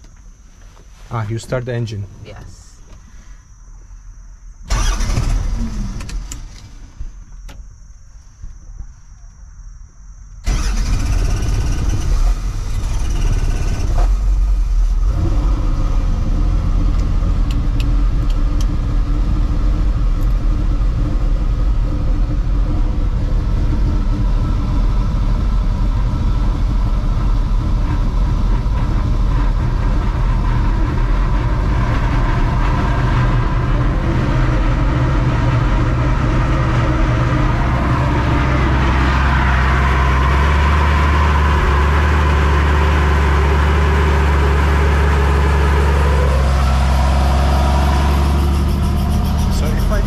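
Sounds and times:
helicopter engine cranking: 4.7s - 7.6s, 10.4s - 50.0s
helicopter engine running: 47.7s - 50.0s.

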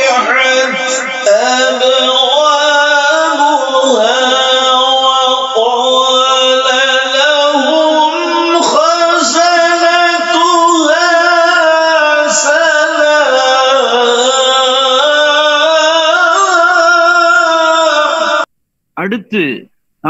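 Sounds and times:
man singing melodically: 0.0s - 18.5s.

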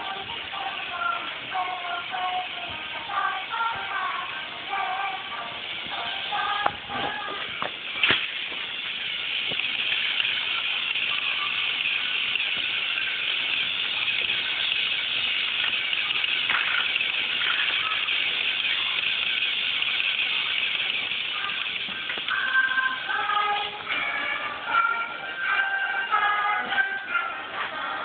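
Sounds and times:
steady hiss: 0.0s - 28.0s.

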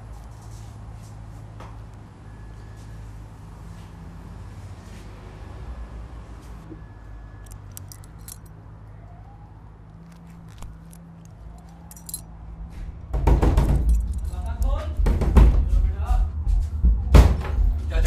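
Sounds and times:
belt buckle clinking: 7.4s - 8.6s, 10.0s - 12.3s, 13.8s - 14.8s.

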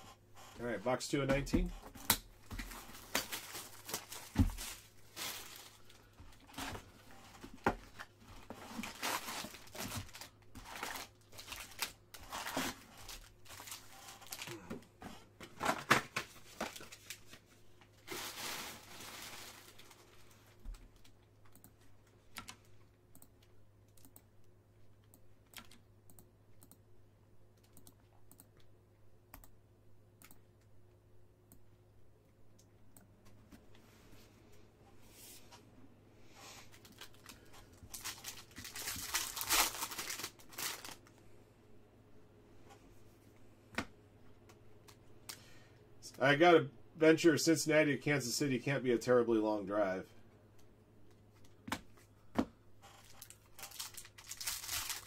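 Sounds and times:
foil crinkling: 2.6s - 6.1s, 8.6s - 14.6s, 18.0s - 20.4s, 36.7s - 41.1s, 53.0s - 55.0s.

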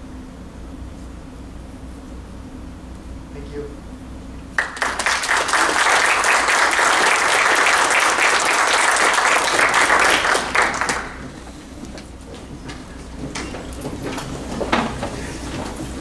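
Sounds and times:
audience applauding: 4.6s - 11.8s.

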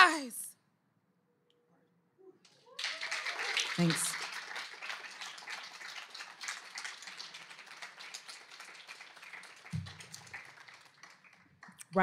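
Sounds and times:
audience applauding: 2.7s - 12.0s.

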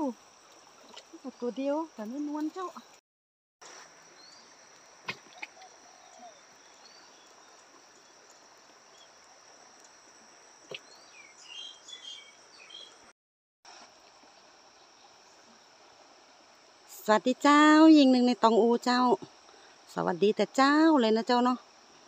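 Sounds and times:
bird chirps: 10.7s - 13.0s.

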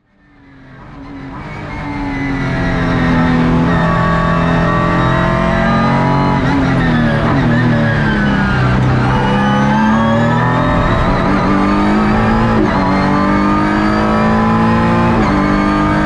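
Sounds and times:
race car engine at high revs: 0.0s - 16.0s.

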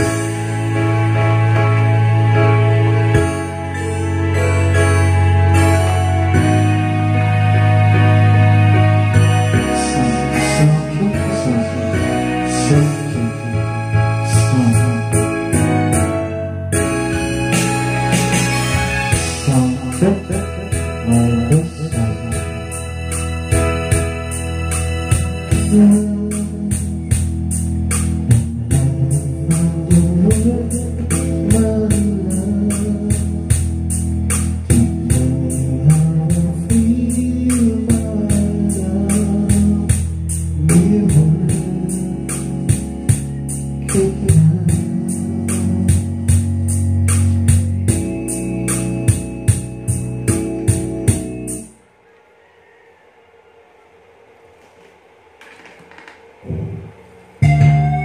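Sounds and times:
karaoke backing music: 0.0s - 51.9s, 54.5s - 58.0s.

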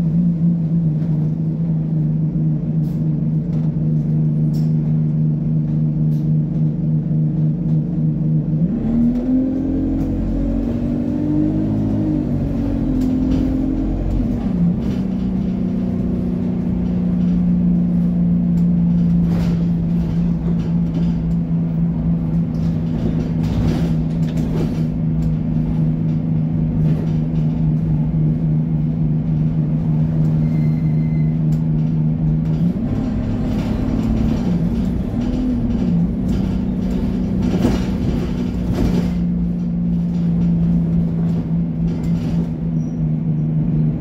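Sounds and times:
bus engine hum: 0.0s - 44.0s
interior fittings rattling: 31.5s - 42.8s.

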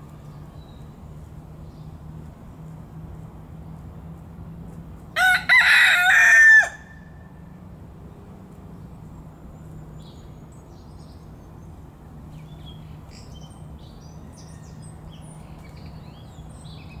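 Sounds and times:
small birds chirping: 0.0s - 4.0s, 8.5s - 17.0s.

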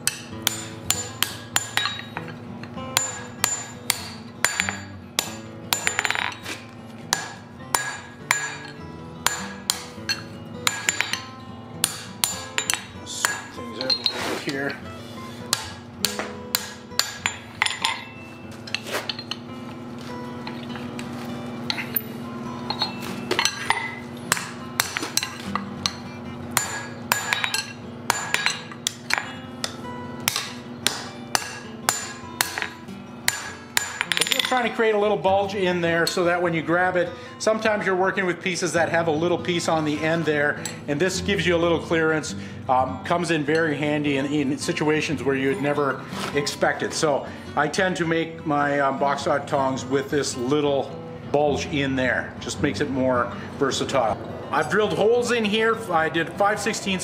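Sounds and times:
hammer striking hot steel on anvil: 0.0s - 14.8s, 15.5s - 19.4s, 21.7s - 34.8s.

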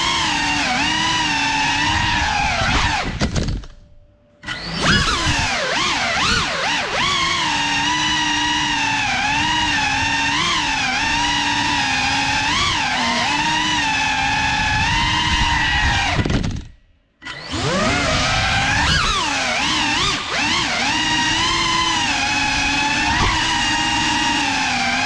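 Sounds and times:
drone motors whining: 0.0s - 3.2s, 4.4s - 25.0s.

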